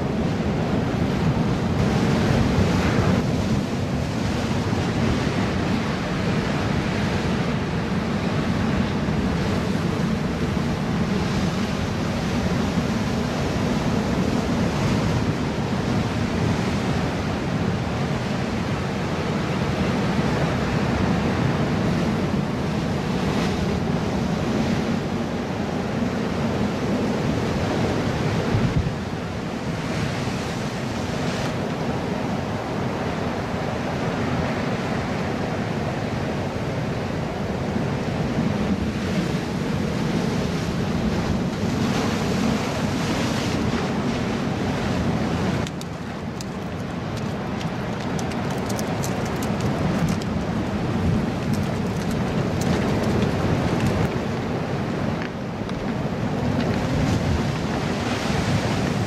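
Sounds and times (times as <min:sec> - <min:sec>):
ocean surf breaking on rocks: 0:00.0 - 0:59.0
wind buffeting microphone: 0:38.2 - 0:59.0.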